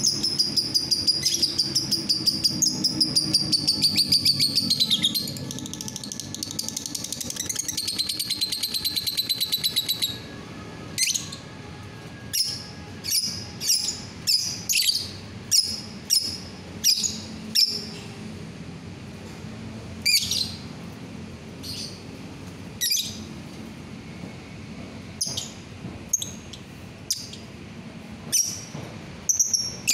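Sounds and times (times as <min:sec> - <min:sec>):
shrill bird chirps: 0:00.0 - 0:11.5, 0:12.3 - 0:18.1, 0:20.0 - 0:20.7, 0:22.8 - 0:23.3, 0:28.3 - 0:29.9.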